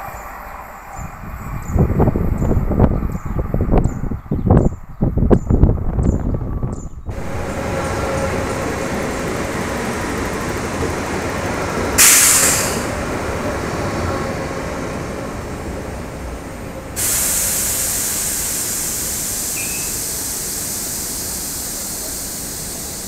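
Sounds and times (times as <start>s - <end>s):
wind buffeting microphone: 0.0s - 18.6s
loud hiss: 7.1s - 13.5s, 16.8s - 23.0s
electric train running: 7.1s - 23.0s.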